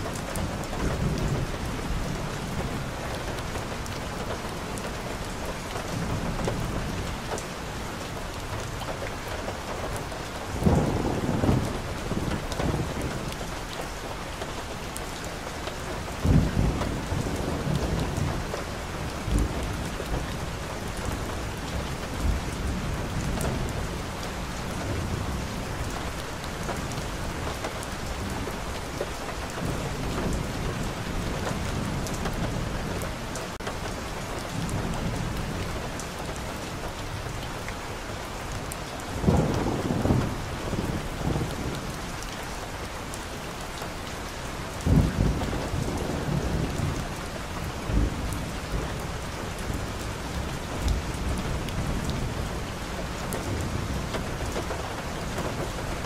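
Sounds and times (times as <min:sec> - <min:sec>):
rain falling on street and foliage: 0:00.0 - 0:56.0
low thunder rumbles: 0:10.5 - 0:13.6, 0:16.2 - 0:27.4, 0:38.3 - 0:42.2, 0:44.6 - 0:56.0.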